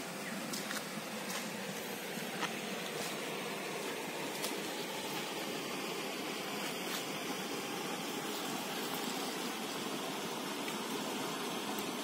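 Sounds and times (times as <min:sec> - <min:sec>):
river water rushing over weir: 0:00.0 - 0:12.0.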